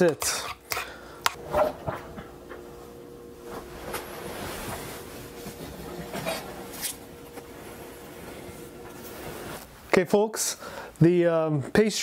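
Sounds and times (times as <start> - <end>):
steady hum with faint tones: 0.0 - 12.0
cloth rustling: 3.4 - 9.8.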